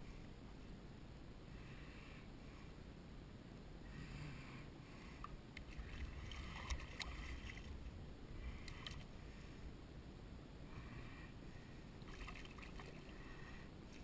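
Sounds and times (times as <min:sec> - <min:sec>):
water splashing and sloshing: 0:05.6 - 0:09.2, 0:12.0 - 0:13.3.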